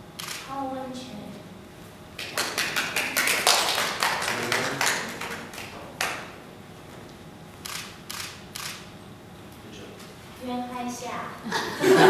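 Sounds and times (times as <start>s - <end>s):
small group clapping: 2.2s - 6.4s.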